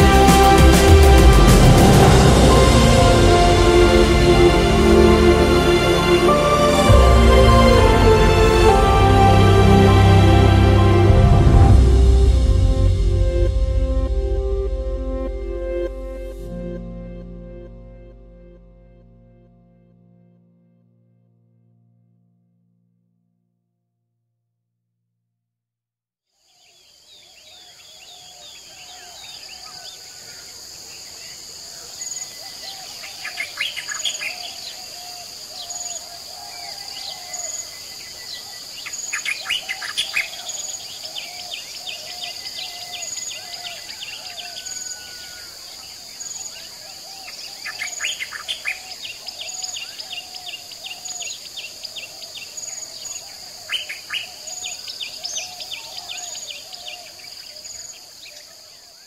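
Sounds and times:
high insect drone: 28.4s - 59.0s
birds singing and calling: 32.0s - 45.5s, 46.2s - 58.5s.

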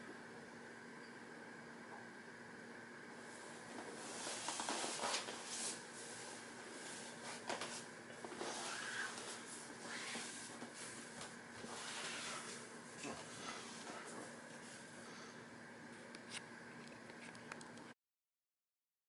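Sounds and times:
faint steady hum: 0.0s - 18.0s
skin rustling on vinyl mats: 3.7s - 14.8s.

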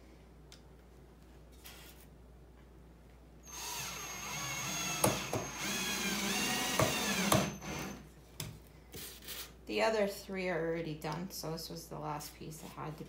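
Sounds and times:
cordless drill motor whining: 3.5s - 8.0s.

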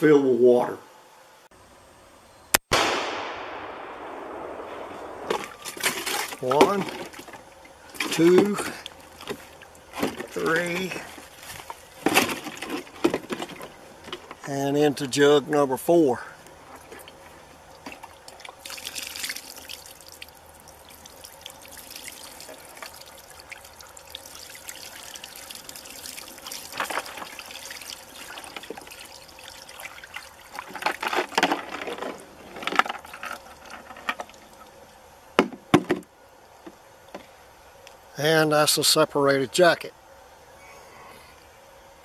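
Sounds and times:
water pouring and splashing: 17.0s - 34.6s.

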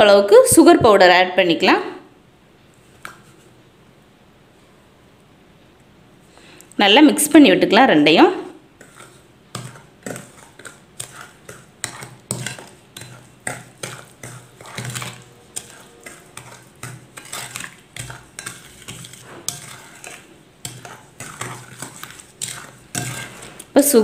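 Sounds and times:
spatula scraping glass bowl: 8.8s - 23.7s.

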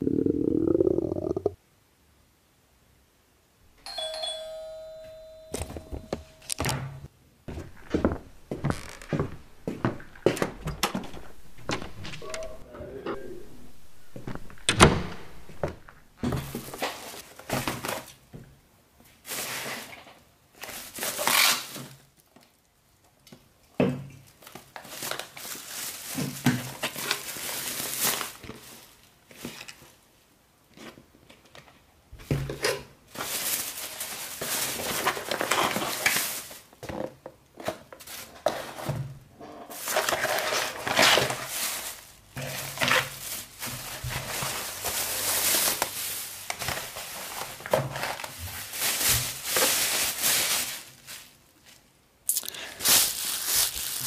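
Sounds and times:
bag and paper packaging rustling: 3.9s - 6.7s, 7.5s - 18.2s, 19.2s - 22.4s, 24.2s - 30.0s, 33.0s - 36.8s, 37.6s - 39.1s, 39.7s - 54.0s.

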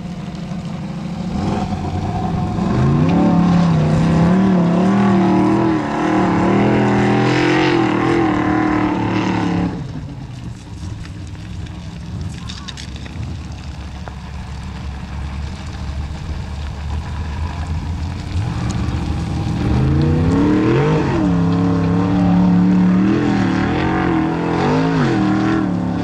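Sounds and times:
car engine revving hard: 1.2s - 10.0s, 18.1s - 26.0s.

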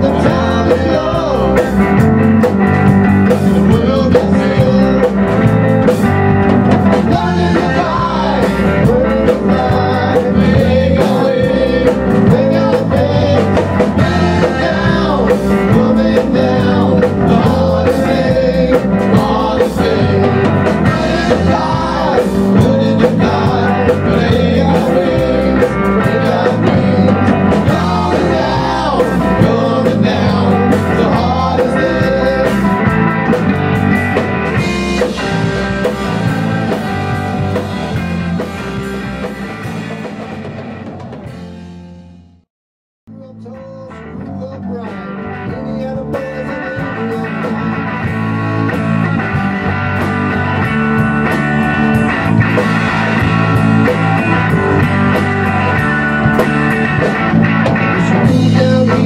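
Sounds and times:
man singing: 0.0s - 2.1s, 3.3s - 5.6s, 6.9s - 33.0s, 43.1s - 48.2s, 57.8s - 59.0s
drum kit: 0.0s - 42.4s, 44.7s - 59.0s
electric guitar: 0.0s - 42.4s, 43.1s - 59.0s
bass guitar: 0.0s - 42.5s, 43.1s - 59.0s.

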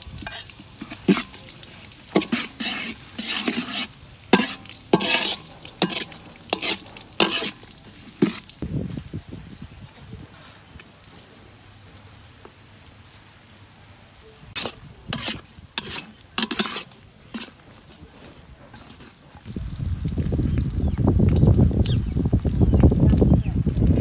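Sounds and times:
metal spatula scraping wok: 0.0s - 8.6s, 14.5s - 19.2s
oil sizzling: 0.0s - 24.0s.

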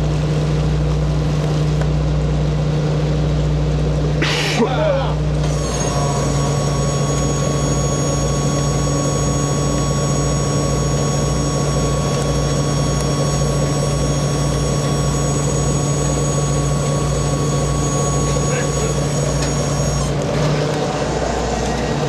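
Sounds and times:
diesel engine throbbing: 0.0s - 22.0s
thin high whine: 5.6s - 20.1s.

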